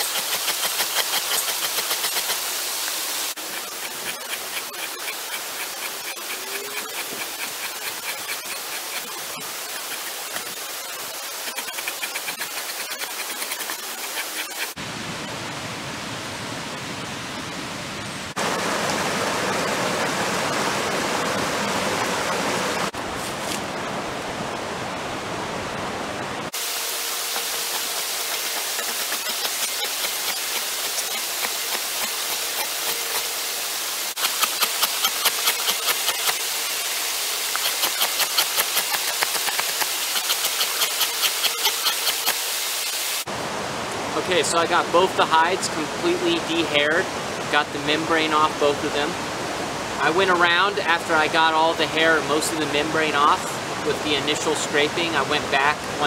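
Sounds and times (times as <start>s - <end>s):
metal scraper rasping on hide: 0.0s - 2.5s, 3.4s - 14.8s, 27.2s - 33.4s, 34.1s - 42.4s
creek water rushing: 0.0s - 56.0s.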